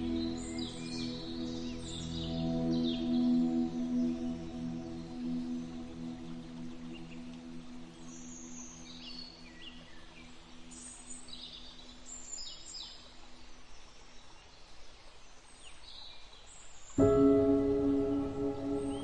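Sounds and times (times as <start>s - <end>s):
ambient music tone: 0.0s - 10.4s, 17.0s - 19.0s
birds chirping: 17.0s - 19.0s.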